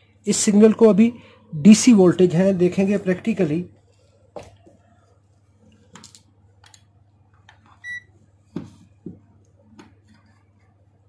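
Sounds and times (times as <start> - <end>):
multimeter beep: 7.8 - 8.1.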